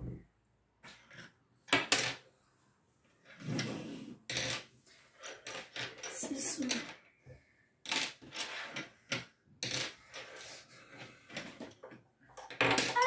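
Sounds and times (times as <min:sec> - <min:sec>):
plastic toy sticks clicking on table: 0:12.4 - 0:13.0.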